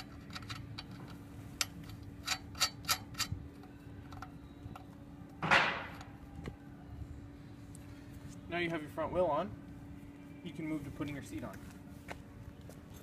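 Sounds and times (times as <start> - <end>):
small metal clicks: 0.0 - 4.9
faint steady hum: 0.0 - 13.0.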